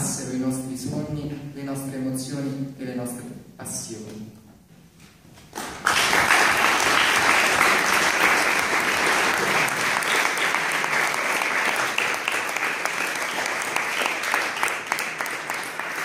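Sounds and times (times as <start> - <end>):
audience applauding: 5.5 - 16.0.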